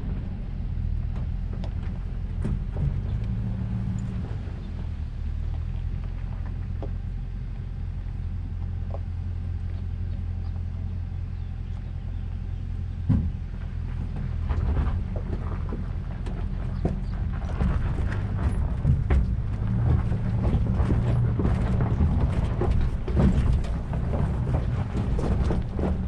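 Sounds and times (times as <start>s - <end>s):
off-road vehicle engine droning: 0.0s - 26.0s
rattling and clicking over stones: 13.6s - 26.0s.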